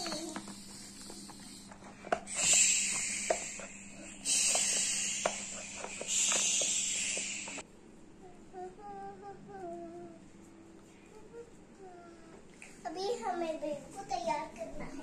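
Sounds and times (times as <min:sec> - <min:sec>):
toy shower hose spraying water: 0:00.0 - 0:07.6.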